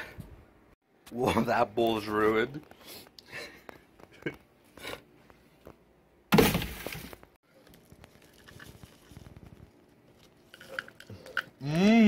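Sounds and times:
cup handling rustle: 0:06.7 - 0:11.6
man's drawn-out vocal sound: 0:11.6 - 0:12.0.

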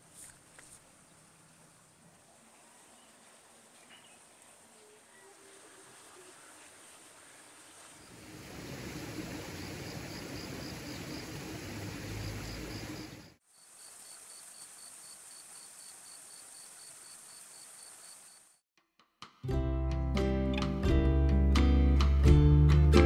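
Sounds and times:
crickets chirping: 0:07.8 - 0:18.6
high insect whine: 0:08.0 - 0:18.6.

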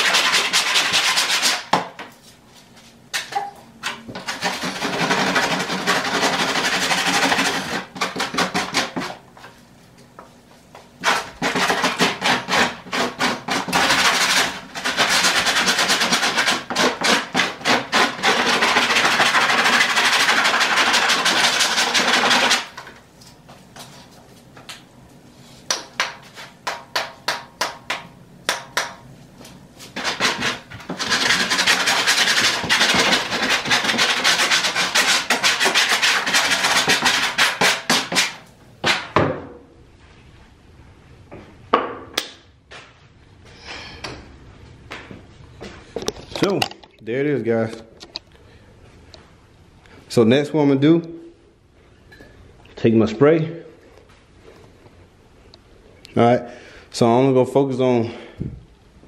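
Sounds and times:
hand tool scraping foam: 0:00.0 - 0:01.7, 0:04.2 - 0:09.2, 0:11.0 - 0:22.8, 0:29.8 - 0:38.4.

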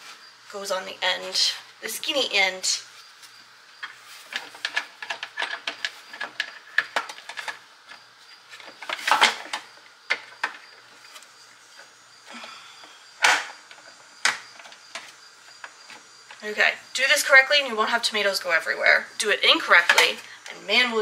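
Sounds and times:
handling noises: 0:03.0 - 0:16.5.

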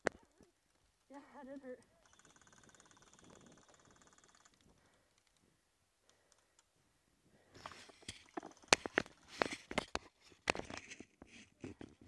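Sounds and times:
cloth rustling on microphone: 0:07.6 - 0:08.3.

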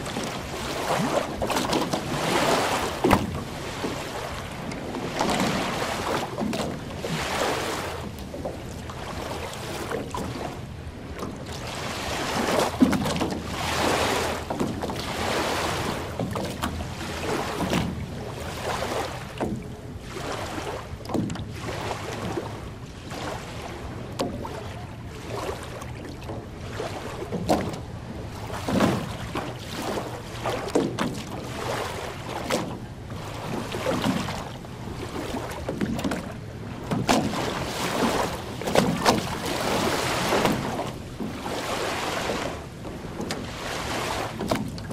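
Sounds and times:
waves lapping on shore: 0:00.0 - 0:44.9.

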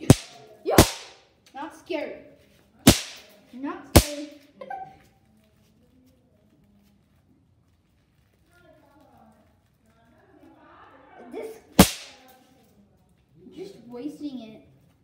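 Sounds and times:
snap pops cracking on floor: 0:00.0 - 0:01.6, 0:02.9 - 0:03.4, 0:04.0 - 0:04.4, 0:11.8 - 0:12.3.

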